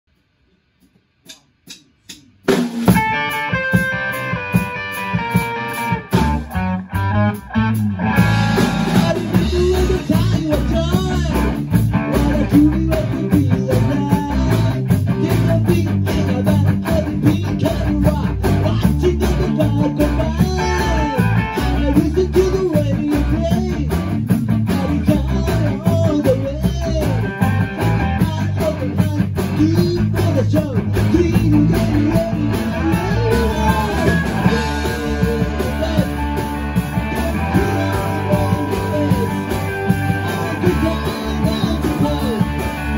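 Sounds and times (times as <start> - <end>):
drums: 0.1 - 42.9
bass guitar: 1.3 - 42.9
electric guitars: 2.5 - 42.9
man singing into microphone: 8.8 - 24.0, 24.7 - 36.3, 37.1 - 42.7.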